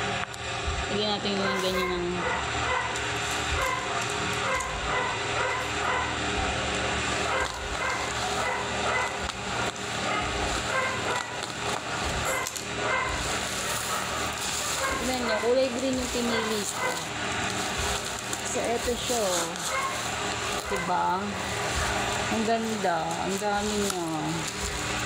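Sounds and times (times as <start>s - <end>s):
small dog barking: 1.4s - 6.2s, 7.2s - 17.9s, 18.8s - 24.8s
bubble-wrap mailer crinkling: 6.6s - 25.0s.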